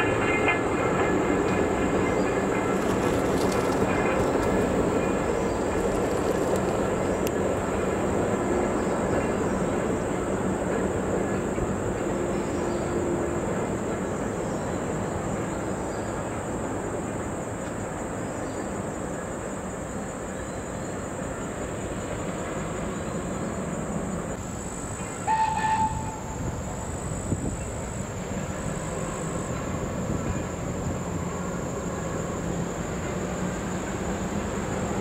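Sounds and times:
distant train rumbling: 0.0 - 35.0
high train whistle: 25.0 - 27.0.

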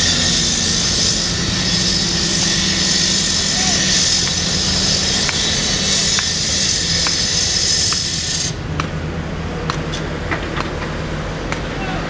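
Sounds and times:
loud hiss: 0.0 - 8.6
excavator diesel engine running: 0.0 - 12.0.

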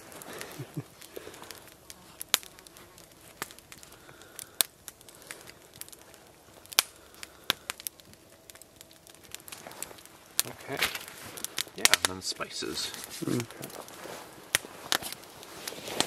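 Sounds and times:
campfire crackling and popping: 0.0 - 16.0.

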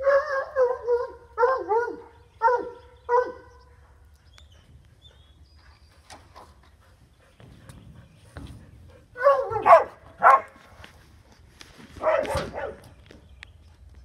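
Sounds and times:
dog barking: 0.0 - 3.5, 9.2 - 10.6, 12.0 - 12.8.

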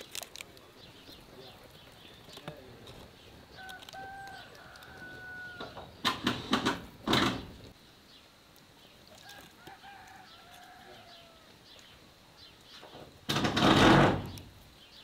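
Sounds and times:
paper crinkling: 0.0 - 5.6, 8.6 - 12.0
chicken calling: 3.4 - 6.1.

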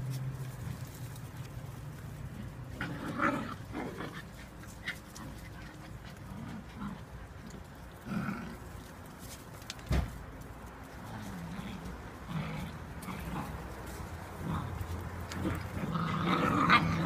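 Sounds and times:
puppies play-fighting: 0.0 - 9.7, 10.3 - 17.0
puppy vocal sounds: 11.0 - 17.0.

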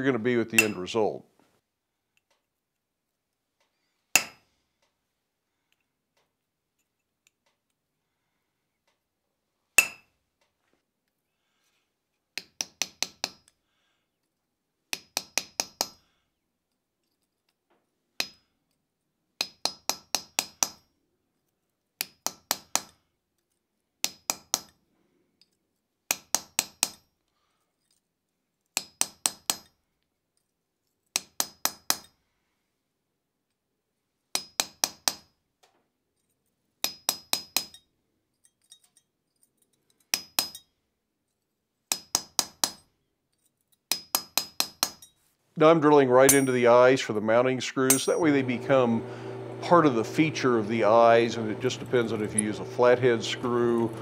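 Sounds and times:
hammer striking metal tools: 0.6 - 0.8, 36.8 - 40.7, 46.3 - 46.9, 47.9 - 48.5, 50.7 - 53.9.

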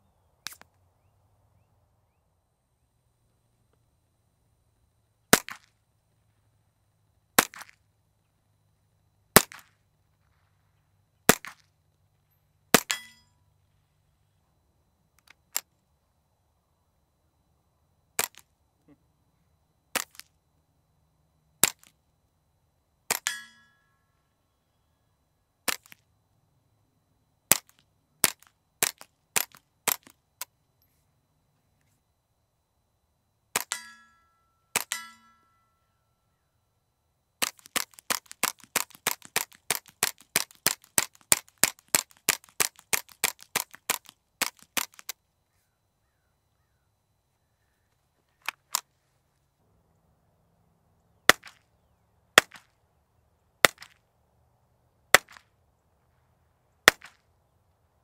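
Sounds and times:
steel target ringing: 12.9 - 13.4, 23.2 - 24.1, 33.7 - 35.9.

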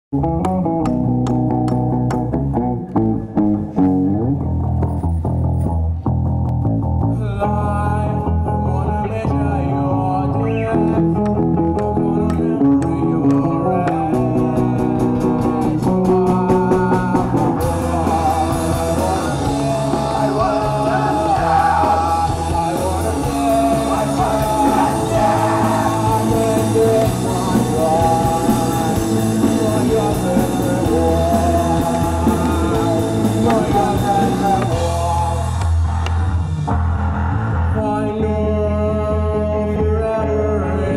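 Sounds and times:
rock band playing: 0.1 - 39.2
person singing: 7.1 - 35.8, 37.4 - 40.9.

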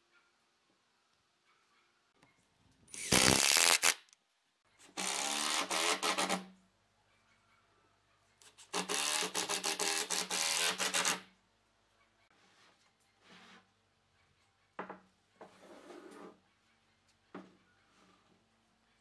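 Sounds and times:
cordless drill driving screws: 2.9 - 3.9
screw grinding into wood: 3.0 - 4.0, 5.0 - 6.4, 8.7 - 11.2.

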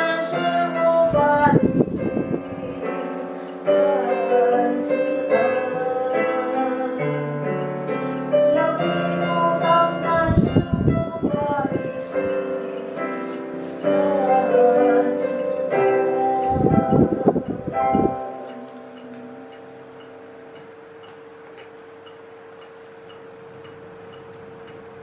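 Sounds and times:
person singing: 0.0 - 19.3
piano accompaniment: 0.0 - 25.0.

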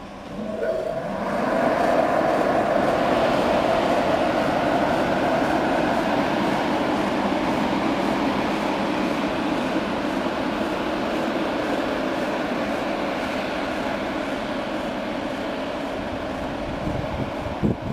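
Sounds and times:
electric locomotive motors and blowers: 0.0 - 17.9
train wheels on rail: 0.0 - 17.9.

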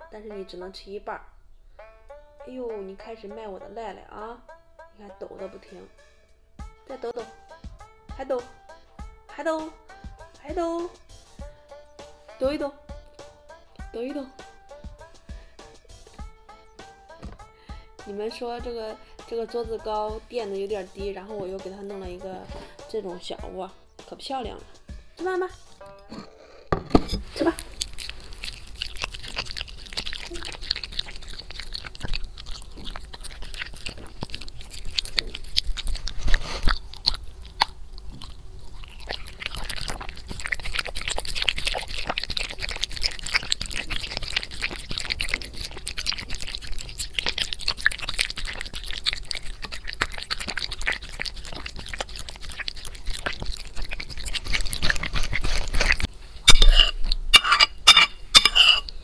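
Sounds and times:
metal spoon scraping a plate: 26.0 - 27.4, 56.5 - 58.9
dog crunching kibble: 27.1 - 59.0.

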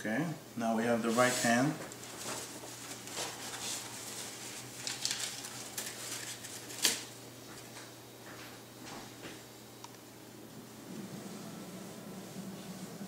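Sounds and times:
tissue paper rustling: 1.0 - 7.1.

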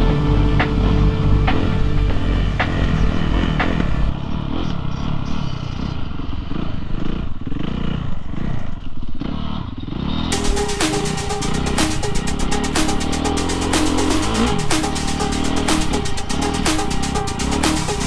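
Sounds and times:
background music with a beat: 0.0 - 4.1, 10.3 - 18.0
dirt bike engine revving: 0.8 - 18.0.

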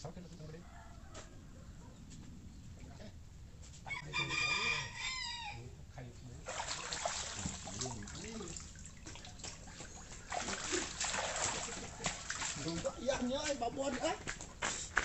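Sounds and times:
rooster crowing: 0.6 - 2.0, 3.8 - 5.7.

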